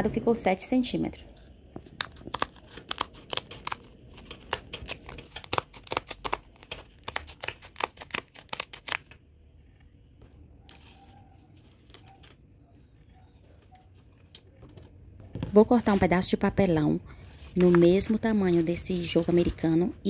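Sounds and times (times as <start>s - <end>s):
scissors snipping: 2.0s - 9.0s
faint handling sounds: 9.6s - 16.4s, 17.1s - 20.0s.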